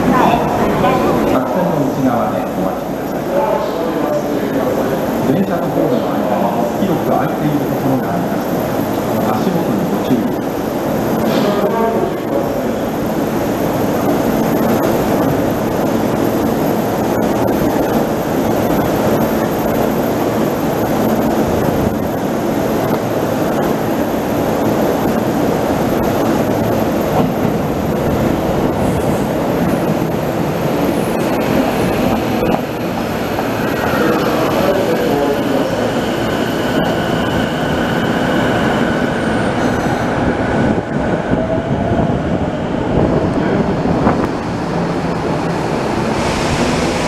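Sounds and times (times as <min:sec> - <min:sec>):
subway train rumbling: 0:00.0 - 0:47.0.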